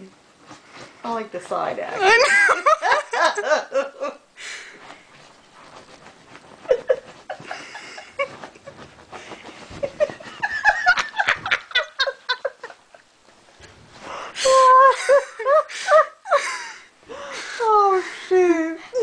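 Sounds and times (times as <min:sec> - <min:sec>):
dog scratching fabric: 0:05.1 - 0:07.3.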